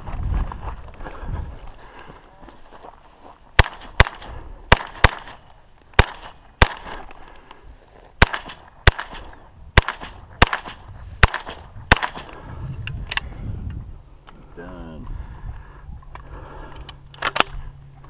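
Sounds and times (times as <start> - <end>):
rifle gunshots with echo: 3.6 - 7.1, 8.2 - 12.4.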